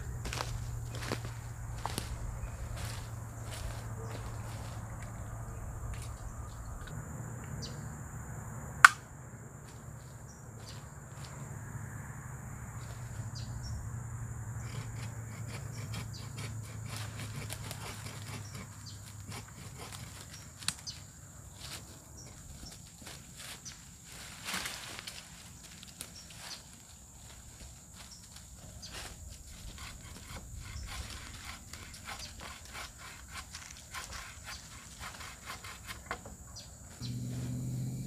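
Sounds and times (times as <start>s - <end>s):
insects buzzing: 0.0s - 38.0s
sapling snapping: 8.8s - 9.1s.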